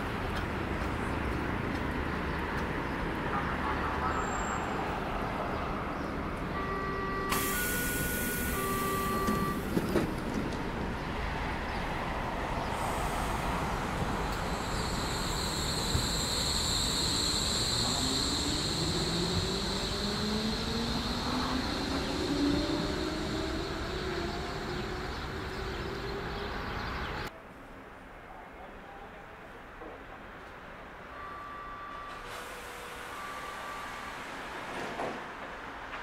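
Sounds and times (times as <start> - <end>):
door warning tones: 6.6 - 9.8
electric train pulling away: 6.6 - 10.9, 12.6 - 27.3, 31.2 - 35.4
air hiss: 12.7 - 23.2
high chirp of traction electronics: 13.8 - 27.3
rising motor tone: 14.5 - 26.4.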